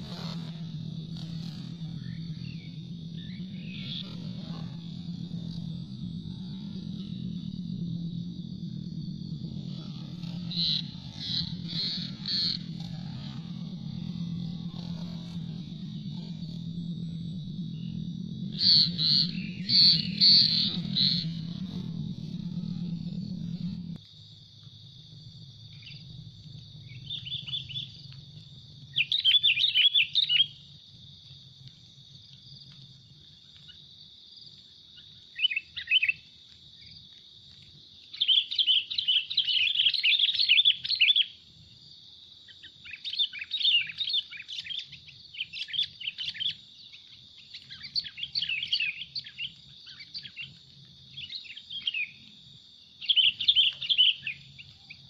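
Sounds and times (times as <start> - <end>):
steady high hum: 0.0 - 31.7.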